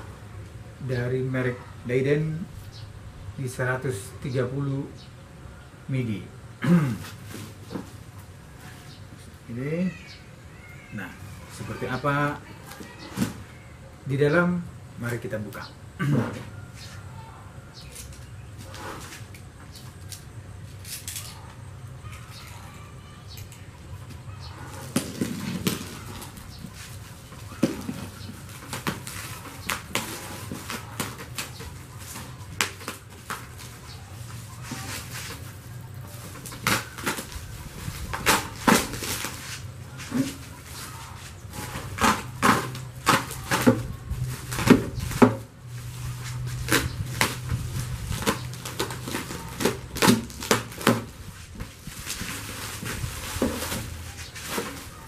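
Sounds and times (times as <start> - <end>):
bubble wrap crinkling: 24.7 - 55.0
box cutter slitting plastic: 41.6 - 43.8.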